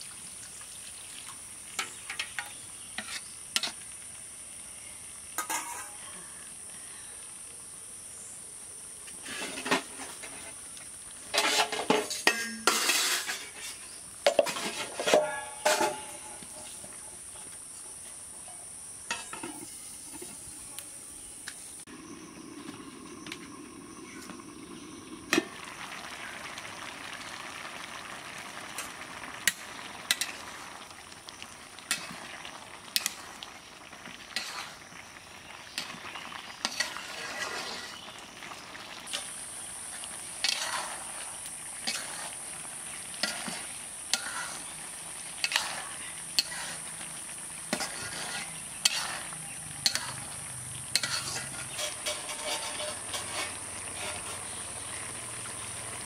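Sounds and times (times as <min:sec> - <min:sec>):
curry sizzling in a pan: 0:00.0 - 0:56.0
metal ladle scraping a pan: 0:01.8 - 0:03.8, 0:05.4 - 0:06.0, 0:09.1 - 0:10.6, 0:11.3 - 0:17.0, 0:19.1 - 0:20.4, 0:28.8 - 0:30.8, 0:31.9 - 0:33.4, 0:34.3 - 0:34.9, 0:36.6 - 0:38.2, 0:39.1 - 0:55.0.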